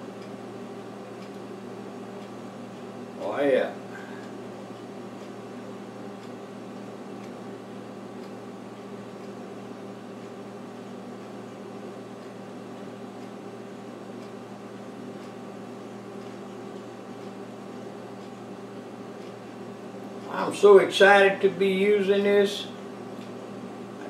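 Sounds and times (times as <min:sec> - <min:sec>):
appliance humming: 0:00.0 - 0:24.0
faint light ticks: 0:01.2 - 0:01.5, 0:02.2 - 0:02.9, 0:04.2 - 0:05.4, 0:06.2 - 0:06.4, 0:07.2 - 0:07.4, 0:08.2 - 0:09.4, 0:12.2 - 0:13.4, 0:14.2 - 0:14.4, 0:15.2 - 0:15.4, 0:16.2 - 0:18.4, 0:23.2 - 0:23.4.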